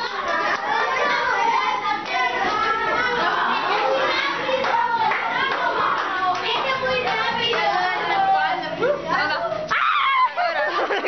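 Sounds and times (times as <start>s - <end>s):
children clapping: 0.4s - 0.7s, 3.8s - 7.8s
children shouting: 9.7s - 10.5s.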